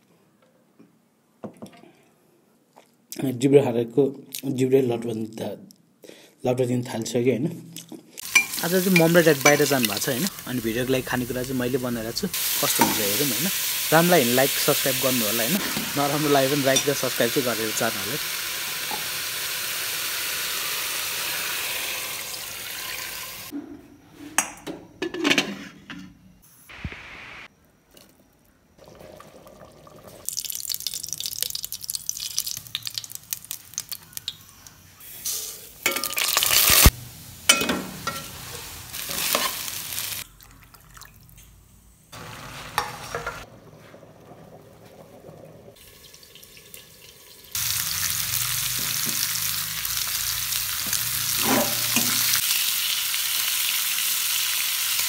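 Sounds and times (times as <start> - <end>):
utensils clattering against pots: 8.2 - 10.3, 12.6 - 13.3, 15.5 - 17.2, 24.4 - 26.1, 35.8 - 36.9, 37.5 - 38.4, 51.3 - 52.4
food sizzling in frying pan: 8.2 - 23.5, 30.2 - 40.2, 42.2 - 55.0
water: 40.3 - 41.4.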